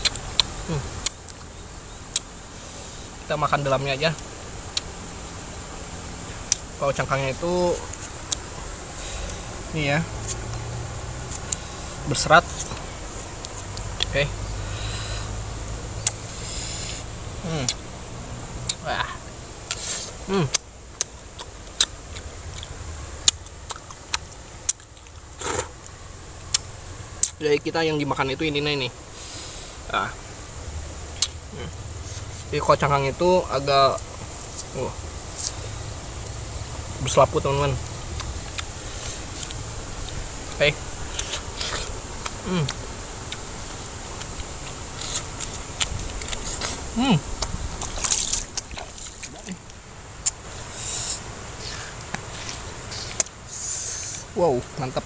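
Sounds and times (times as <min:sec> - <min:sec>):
crisp wet chewing crunches: 0:10.2 - 0:14.2, 0:19.7 - 0:27.4, 0:31.2 - 0:32.6, 0:37.8 - 0:53.4
person humming: 0:20.2 - 0:20.6, 0:31.5 - 0:31.8, 0:42.4 - 0:42.8.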